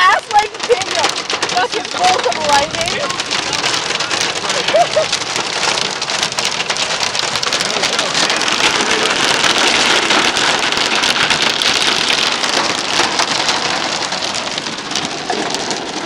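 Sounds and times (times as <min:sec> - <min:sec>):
hail and rain on car roof: 0:00.0 - 0:16.0.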